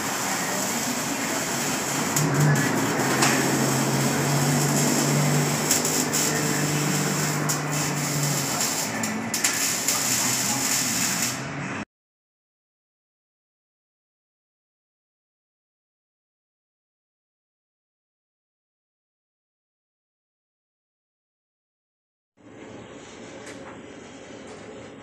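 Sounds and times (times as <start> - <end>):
arc welding crackling hiss: 0.0 - 11.5.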